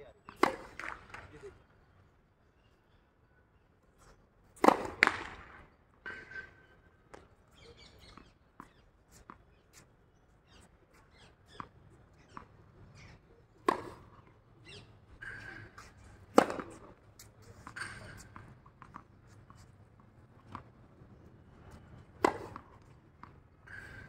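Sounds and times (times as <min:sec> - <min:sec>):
tennis racket hitting ball: 0:00.4 - 0:01.1, 0:04.6 - 0:05.3, 0:13.6 - 0:14.2, 0:15.2 - 0:19.0, 0:22.0 - 0:24.0.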